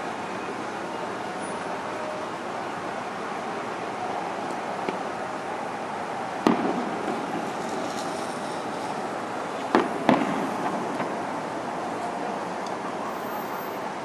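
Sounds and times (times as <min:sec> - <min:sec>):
street traffic hiss and hum: 0:00.0 - 0:14.0
distant fireworks exploding: 0:06.3 - 0:12.2.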